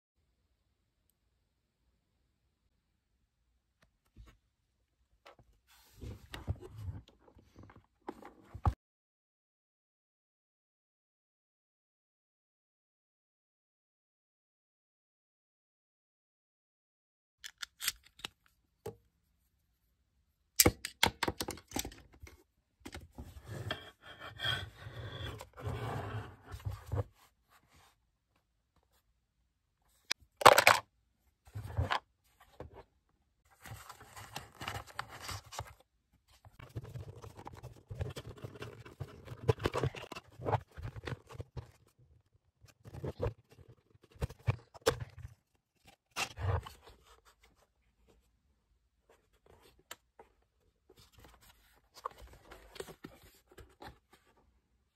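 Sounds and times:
plastic parts clicking and scraping: 17.4 - 18.5, 30.4 - 30.8, 36.5 - 41.9.

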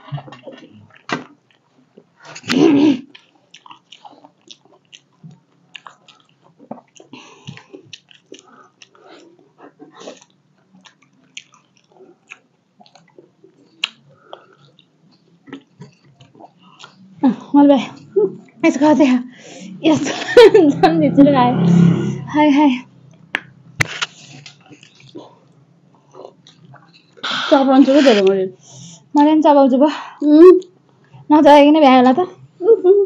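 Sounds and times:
person chewing crunchy food: 3.1 - 17.1, 23.9 - 27.3.

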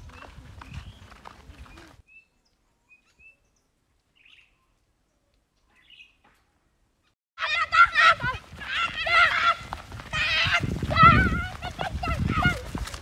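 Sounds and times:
footsteps on dry dirt path: 0.0 - 2.1, 7.9 - 13.0
faint high bird chirps: 1.7 - 6.3.

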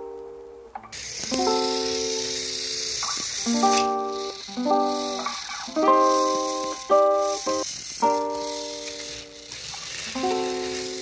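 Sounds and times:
steady high hiss: 0.0 - 11.0.

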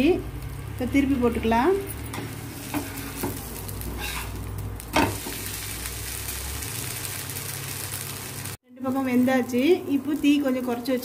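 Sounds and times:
batter sizzling on iron griddle: 0.0 - 11.0.

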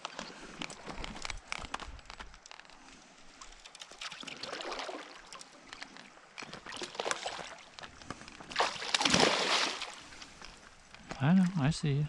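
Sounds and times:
water sloshing: 3.3 - 11.6
fish splashing at water surface: 3.5 - 5.7, 8.4 - 10.4.

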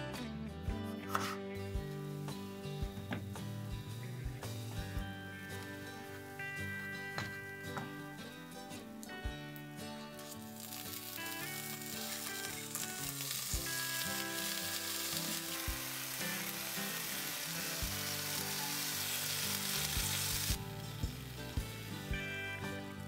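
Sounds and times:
background music with held notes: 0.0 - 23.0
food sizzling in a pan: 1.2 - 8.5, 9.8 - 23.0.

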